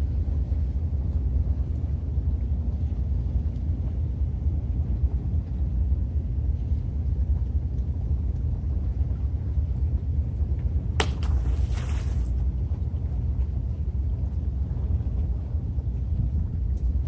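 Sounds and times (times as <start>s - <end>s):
wind rumble on microphone: 0.0s - 17.0s
splash in water: 11.0s - 12.4s.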